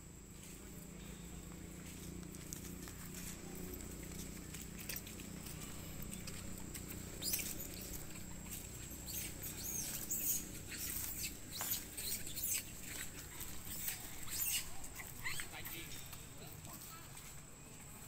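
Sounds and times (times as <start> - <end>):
monkeys squeaking: 4.8 - 16.2.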